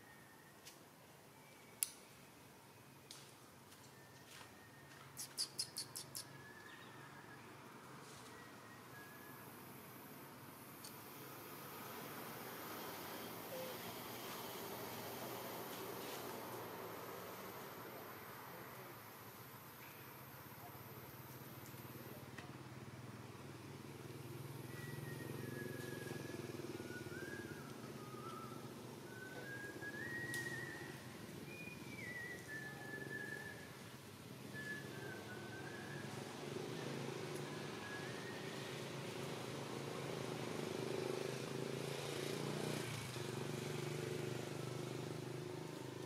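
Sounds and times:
faint high whistle-like notes: 0.0 - 10.1, 12.4 - 15.5, 24.6 - 39.0
engine humming: 20.2 - 46.0.

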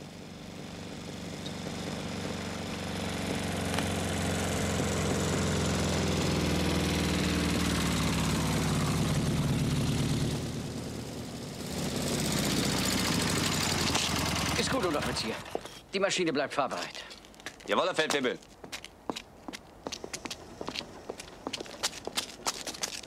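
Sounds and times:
motorcycle engine running: 0.0 - 15.7.

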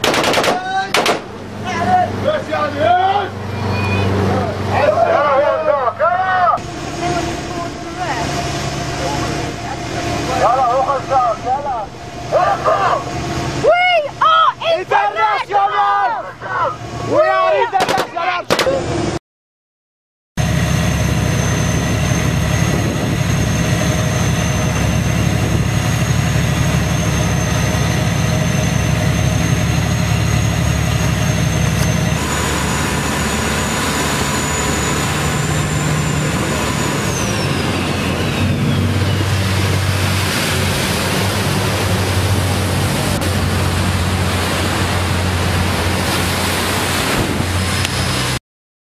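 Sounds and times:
boat engine running: 0.0 - 19.2, 20.4 - 48.4
water noise: 0.0 - 19.2, 20.4 - 48.4
wind: 0.0 - 19.2, 20.4 - 48.4
thin high whine: 20.4 - 40.0.

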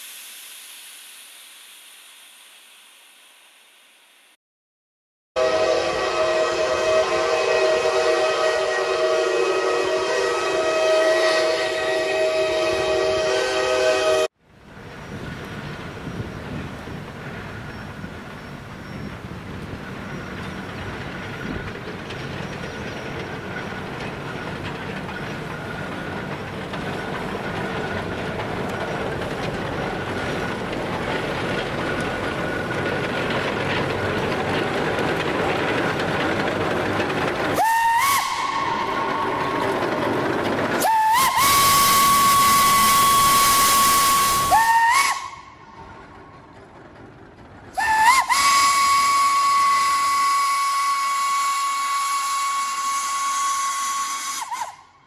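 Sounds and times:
steam hissing: 0.0 - 4.2, 33.8 - 45.8, 47.8 - 54.8
steam whistle blasts: 5.4 - 14.3, 37.6 - 39.6, 40.8 - 45.6, 47.8 - 55.0.

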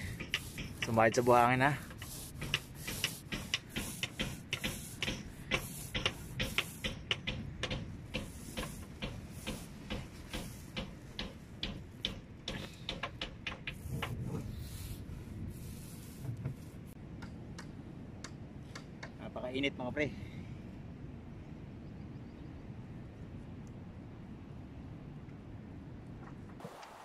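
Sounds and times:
paint roller clicking ticks: 0.0 - 11.0.

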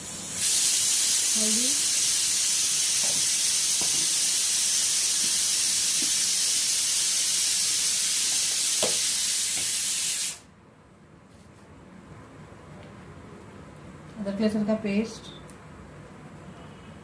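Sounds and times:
loud steady hiss: 0.0 - 10.6.

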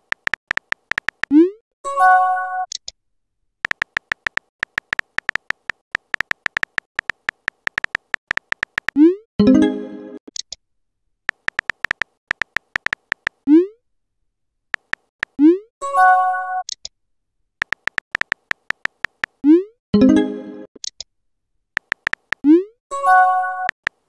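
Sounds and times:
keyboard typing clicks: 0.0 - 1.4, 3.6 - 9.1, 11.3 - 13.4, 14.8 - 15.5, 17.6 - 19.6, 21.8 - 22.6, 23.6 - 24.0.

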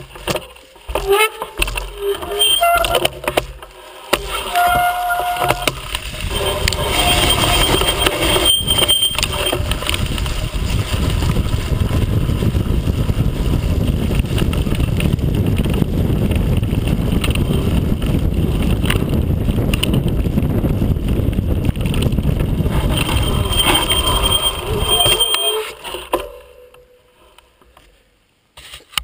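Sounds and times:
bike rattling and knocking: 0.0 - 26.5
wind rumble on microphone: 4.2 - 25.6.

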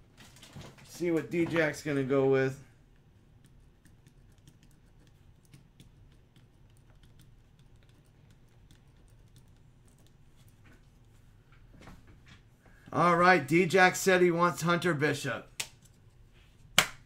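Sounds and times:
computer keyboard typing: 3.4 - 10.2.

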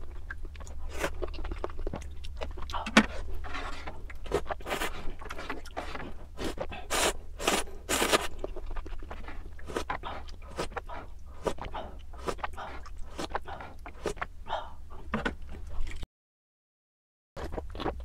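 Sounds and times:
chewing and wet mouth sounds: 0.0 - 16.0, 17.4 - 18.0
slurping noodles: 3.0 - 14.2.

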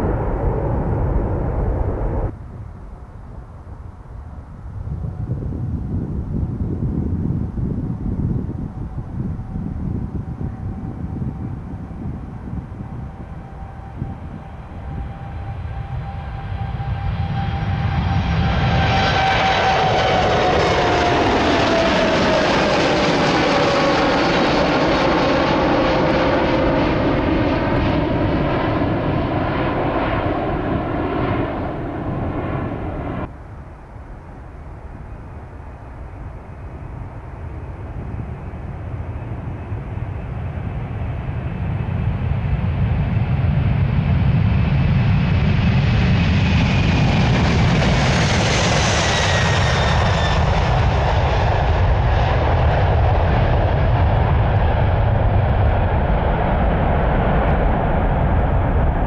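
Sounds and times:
high whine sliding down: 0.0 - 2.5
jet engines at takeoff thrust: 0.0 - 59.0.

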